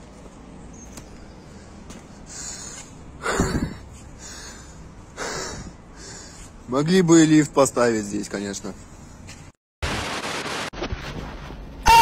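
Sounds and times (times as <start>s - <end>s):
person breathing hard: 1.2s - 6.6s.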